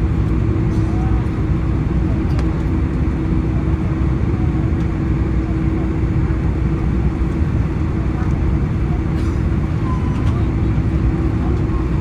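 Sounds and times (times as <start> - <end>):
constant hum: 0.0 - 12.0
jet engines rumbling: 0.0 - 12.0.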